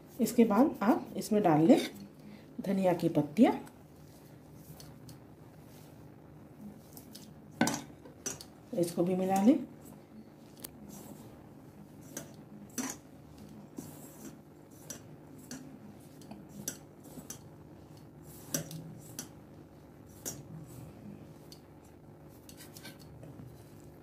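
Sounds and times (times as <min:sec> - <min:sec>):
faint low hum: 0:00.0 - 0:24.0
hand rubbing flour in bowl: 0:08.7 - 0:19.4.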